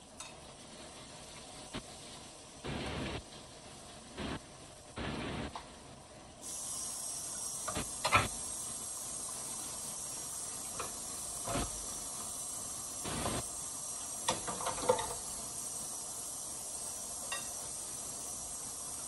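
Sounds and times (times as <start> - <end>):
fish frying in oil: 6.5 - 19.0.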